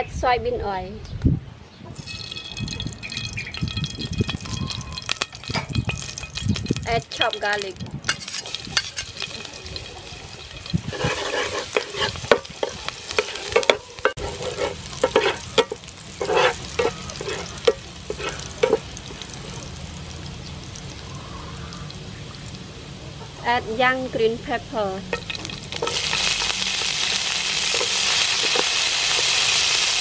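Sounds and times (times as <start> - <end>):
garlic sizzling in oil: 2.0 - 30.0
metal spatula scraping pan: 7.1 - 18.9, 25.1 - 29.7.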